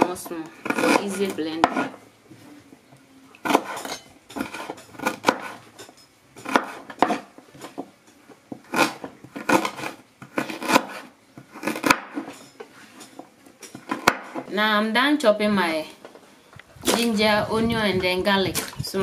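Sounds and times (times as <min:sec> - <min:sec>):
knife chopping on wooden board: 0:00.0 - 0:02.0, 0:03.4 - 0:05.6, 0:06.4 - 0:07.9, 0:08.5 - 0:12.4, 0:13.7 - 0:14.5.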